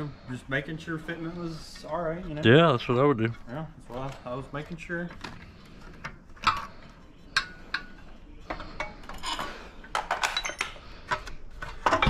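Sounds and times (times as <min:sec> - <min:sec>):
metal tools clinking: 0:07.4 - 0:12.0.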